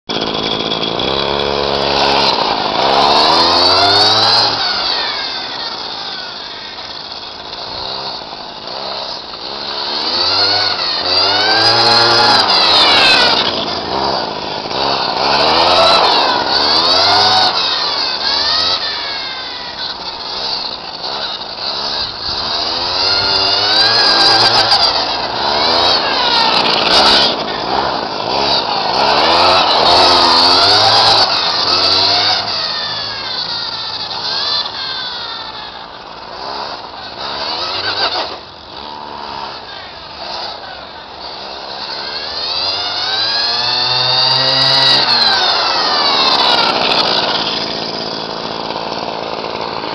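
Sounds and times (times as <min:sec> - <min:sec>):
small engine revving: 0:00.1 - 0:49.9.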